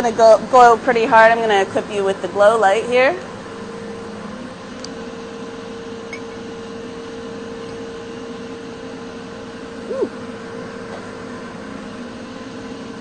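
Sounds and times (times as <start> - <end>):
steady mechanical hum: 0.0 - 13.0.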